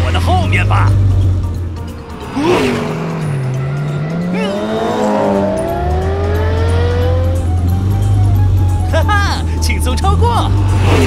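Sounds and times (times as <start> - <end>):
falling swoosh: 1.8 - 5.9
cartoon race car engine revving: 2.0 - 8.0.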